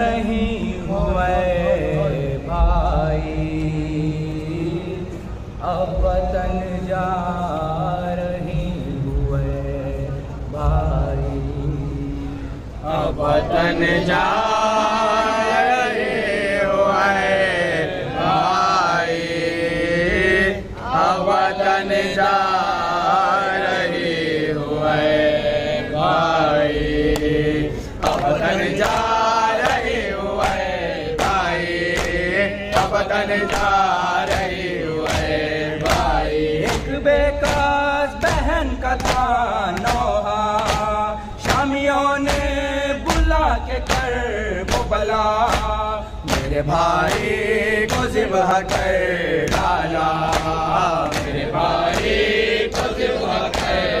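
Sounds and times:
men chanting into microphone: 0.0 - 54.0
chest-beating slaps: 32.8 - 53.9.

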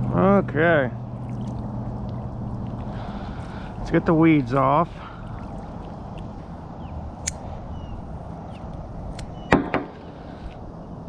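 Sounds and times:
low background rumble: 0.0 - 11.0
sharp clicks and knocks: 9.2 - 10.0.

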